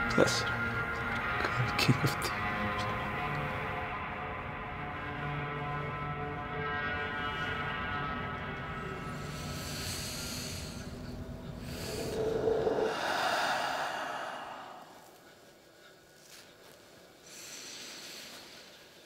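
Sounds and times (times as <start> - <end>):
low drone: 8.6 - 16.0
man breathing heavily: 9.1 - 19.0.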